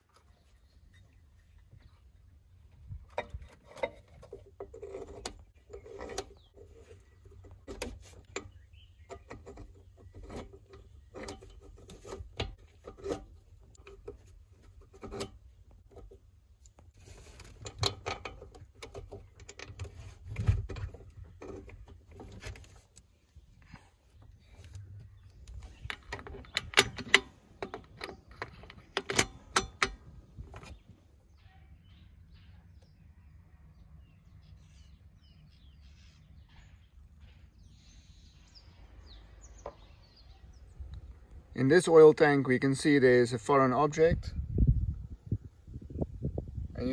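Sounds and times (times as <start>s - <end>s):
metal bolts clicking and clinking: 2.9s - 16.2s, 17.4s - 22.7s, 25.5s - 30.8s.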